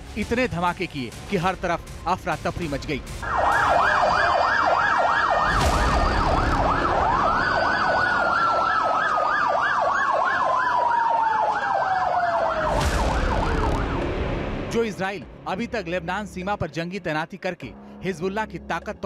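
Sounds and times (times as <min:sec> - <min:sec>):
siren yelping up and down: 0:03.2 - 0:14.1
siren long rising and falling tone: 0:03.2 - 0:14.6.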